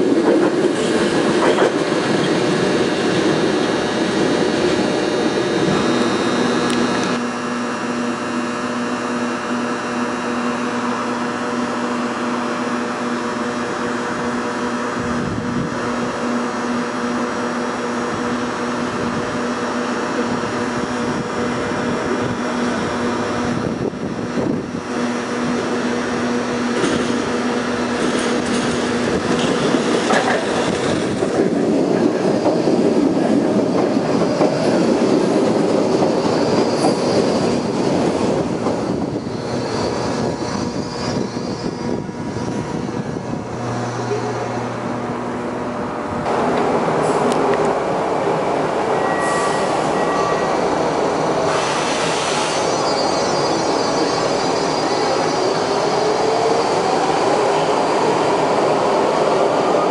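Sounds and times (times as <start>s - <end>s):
subway train rumbling along rails: 0.0s - 59.9s
faint high wheel squeal: 36.1s - 37.8s, 38.9s - 42.7s, 48.9s - 57.1s.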